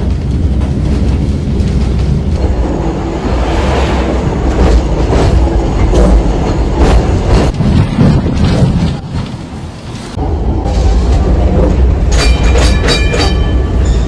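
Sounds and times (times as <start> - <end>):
tram rumbling and rattling: 0.0 - 14.0.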